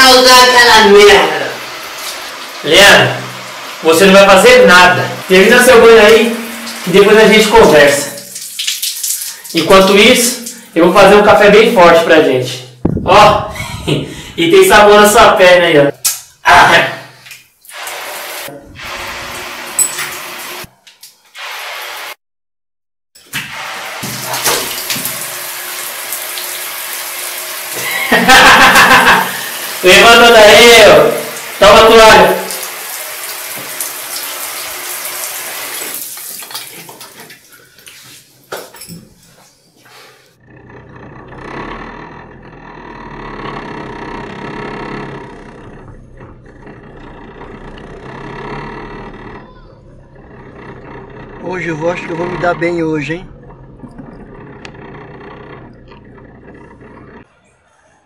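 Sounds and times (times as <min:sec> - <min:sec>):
shower water running: 0:00.0 - 0:12.8, 0:13.5 - 0:22.2, 0:23.2 - 0:40.4, 0:43.1 - 0:57.3
car engine: 0:40.4 - 0:57.3.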